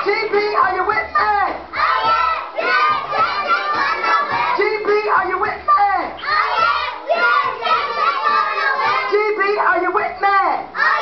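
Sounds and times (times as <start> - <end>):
children singing in chorus: 1.7 - 4.6, 6.2 - 9.2, 10.8 - 11.0.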